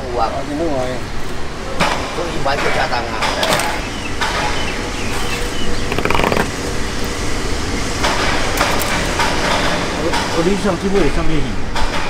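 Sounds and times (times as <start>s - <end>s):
boat engine rumble: 1.5s - 10.1s
fish clattering on ice: 5.1s - 6.6s.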